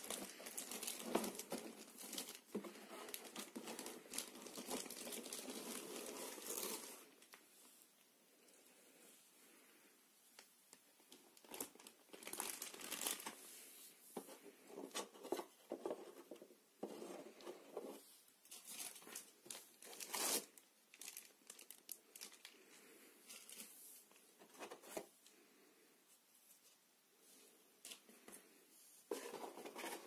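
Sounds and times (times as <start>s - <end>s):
plastic bags crinkling: 0.0s - 7.4s, 11.1s - 13.4s, 18.5s - 23.7s.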